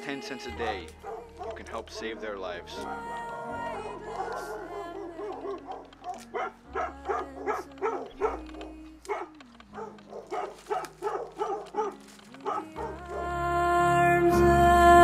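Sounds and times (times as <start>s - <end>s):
soft sustained music: 0.0s - 15.0s.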